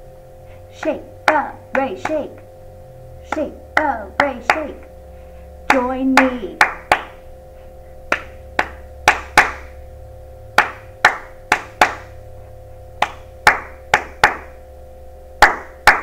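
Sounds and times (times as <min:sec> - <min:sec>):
hands clapping softly in rhythm: 0:05.7 - 0:07.2, 0:08.1 - 0:09.8, 0:10.6 - 0:12.2, 0:13.0 - 0:14.6, 0:15.4 - 0:16.0.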